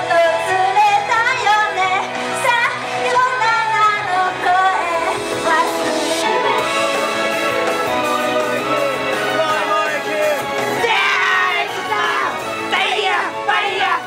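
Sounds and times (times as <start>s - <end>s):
women singing pop song: 0.0s - 10.1s
pop backing track over speakers: 0.0s - 14.0s.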